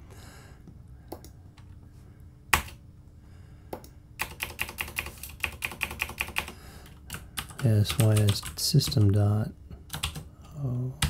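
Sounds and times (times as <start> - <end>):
typing on computer keyboard: 2.5 - 2.8, 3.8 - 9.1, 9.9 - 10.3.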